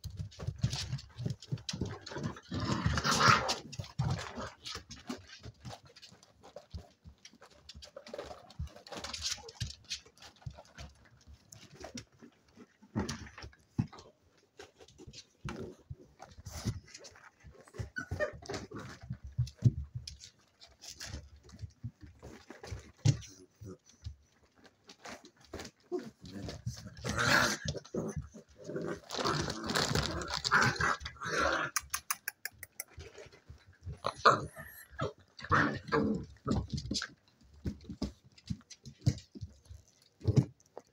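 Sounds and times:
puppy paws scrabbling on wood: 0:00.0 - 0:40.9
puppy grunts: 0:25.9 - 0:36.7.

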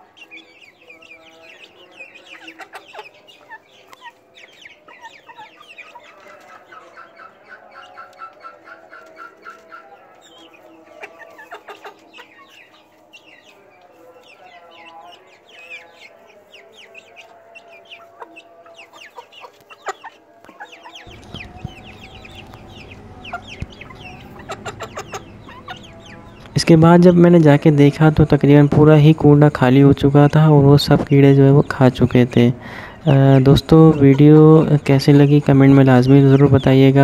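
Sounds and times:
chickens clucking: 0:00.0 - 0:37.0
chicks peeping: 0:00.0 - 0:37.0
beaks pecking a dish: 0:00.2 - 0:27.5
low rumble: 0:21.1 - 0:27.1.

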